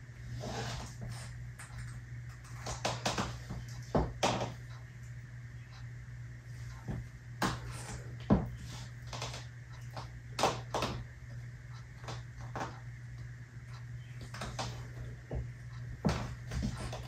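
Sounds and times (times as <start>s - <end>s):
steady low hum: 0.0s - 17.0s
high heels clicking on wooden floor: 14.3s - 17.0s.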